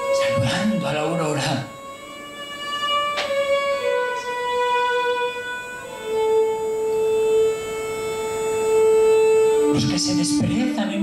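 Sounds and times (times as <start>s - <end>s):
solo violin slow bowed notes: 0.0s - 11.0s.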